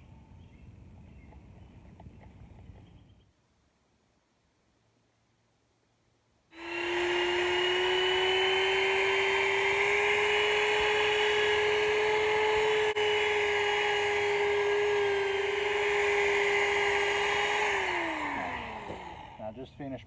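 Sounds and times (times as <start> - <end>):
electric drill whining: 6.5 - 19.5.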